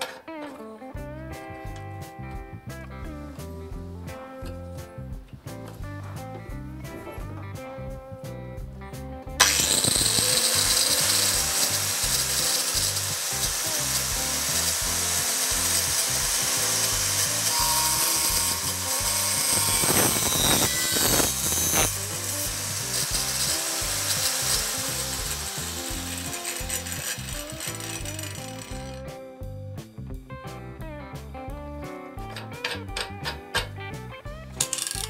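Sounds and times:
angle grinder cutting board: 0:09.4 - 0:29.0, 0:32.3 - 0:33.8, 0:34.6 - 0:35.0
harsh blade scrapes: 0:09.4 - 0:29.0.

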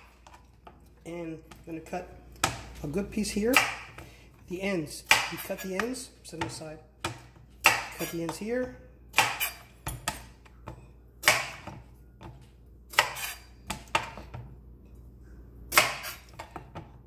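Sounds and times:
knife chopping on wooden board: 0:03.5 - 0:04.1, 0:05.0 - 0:08.5, 0:09.1 - 0:14.5, 0:15.7 - 0:17.0.

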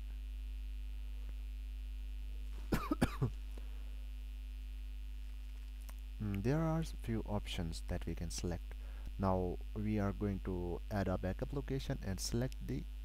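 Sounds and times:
low electrical hum: 0:00.0 - 0:13.0
person coughing: 0:02.7 - 0:03.4.

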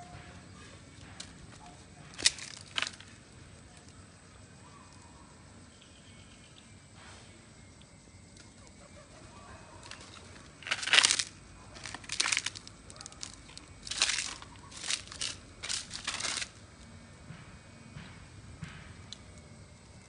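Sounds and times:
leaves crunching and rustling: 0:02.1 - 0:03.1, 0:09.8 - 0:16.6.

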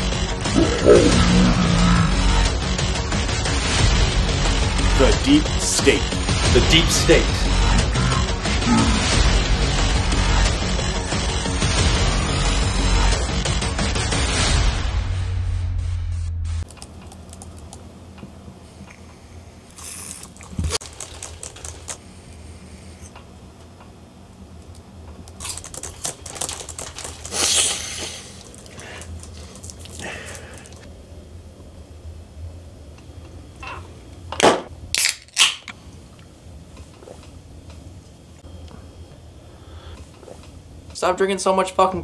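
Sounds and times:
laptop keyboard typing: 0:16.6 - 0:17.8, 0:20.3 - 0:22.0, 0:25.4 - 0:30.8
soda cans popping open: 0:34.4 - 0:35.7.

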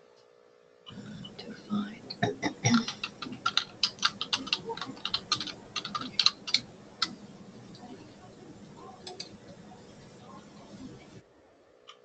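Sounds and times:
typing on keyboard: 0:02.1 - 0:11.2.

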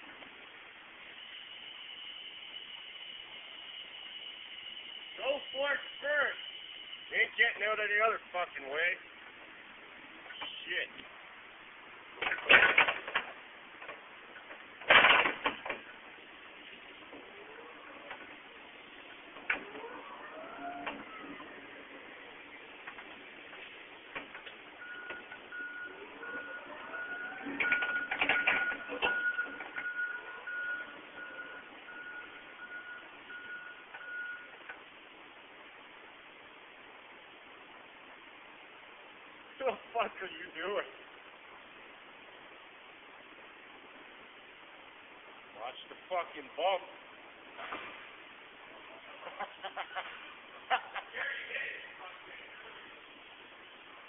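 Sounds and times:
reversing alarm beeping: 0:01.1 - 0:07.4, 0:24.8 - 0:34.6
clattering knocks and rattles: 0:12.2 - 0:15.9.

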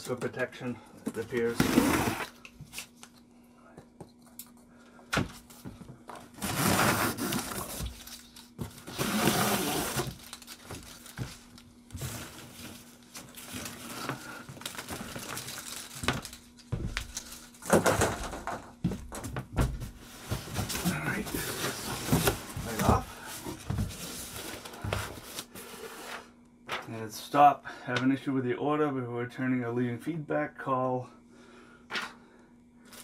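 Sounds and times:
faint steady hum: 0:00.0 - 0:33.0
cardboard scraping and rustling: 0:01.2 - 0:02.3, 0:05.4 - 0:16.3, 0:19.2 - 0:26.2.

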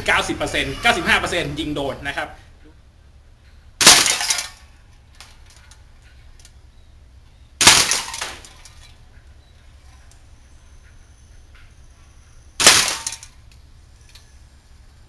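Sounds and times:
airsoft gun full-auto burst: 0:12.6 - 0:13.2.

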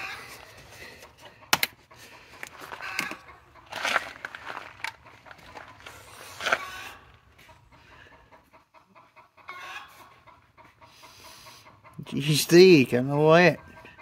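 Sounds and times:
chickens clucking: 0:00.0 - 0:14.0.

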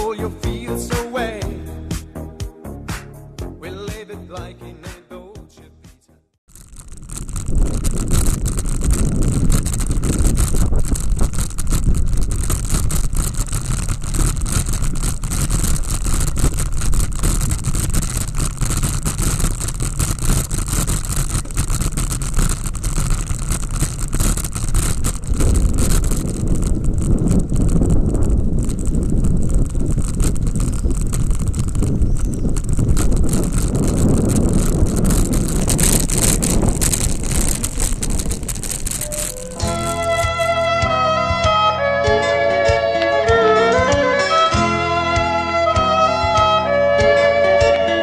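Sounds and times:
bicycle rattling over cobblestones: 0:06.5 - 0:41.5
wind rushing over microphone: 0:06.5 - 0:48.0.

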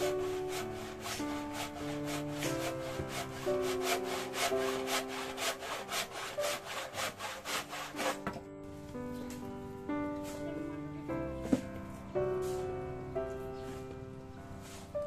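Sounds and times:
handsaw cutting wood: 0:00.0 - 0:08.3.

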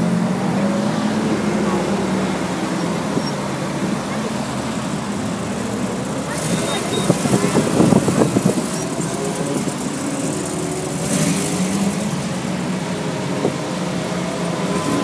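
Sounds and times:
sports car engines burbling: 0:00.0 - 0:15.0.

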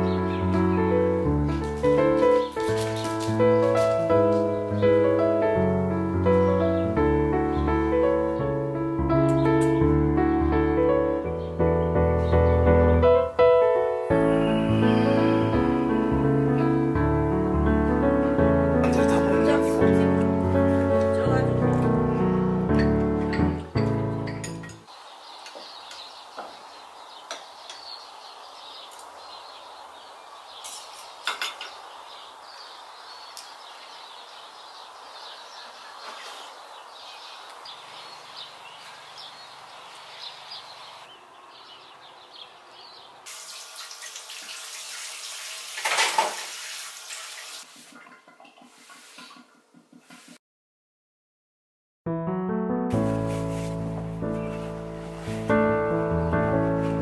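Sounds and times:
crockery clattering: 0:22.7 - 0:24.9, 0:30.6 - 0:31.8
dishes and cutlery clinking: 0:22.8 - 0:24.9, 0:30.6 - 0:31.8, 0:47.9 - 0:50.3
tap water running: 0:43.3 - 0:50.3.

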